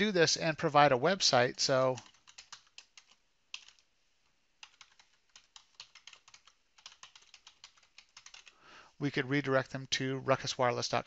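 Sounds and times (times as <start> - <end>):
computer keyboard typing: 1.6 - 3.9, 4.6 - 8.6.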